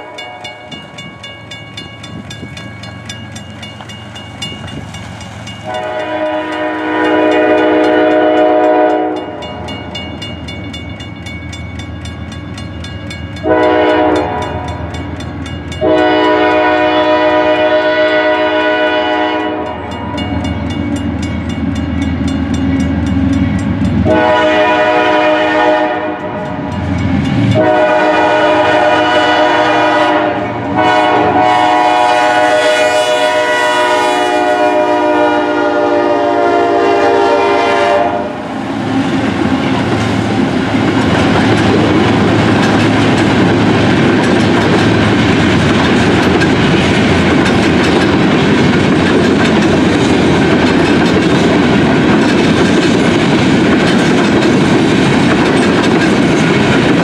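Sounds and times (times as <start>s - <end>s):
locomotives passing: 0.6s - 35.8s, 36.5s - 57.0s
locomotive air horn blasts: 5.6s - 9.6s, 13.4s - 14.9s, 15.8s - 20.1s, 24.0s - 26.4s, 27.5s - 38.4s
coal hoppers clattering on rails: 40.9s - 57.0s.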